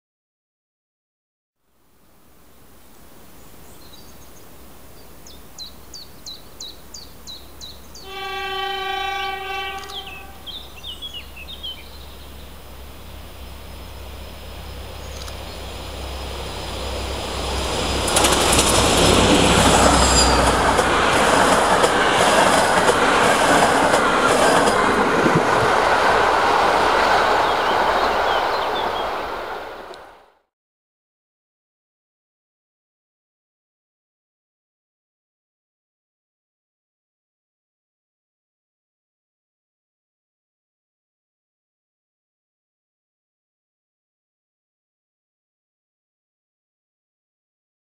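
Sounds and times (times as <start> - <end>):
diesel locomotive engine rumble: 4.2 - 30.3
train horn: 8.0 - 10.9
wheel-on-rail noise: 9.7 - 30.2.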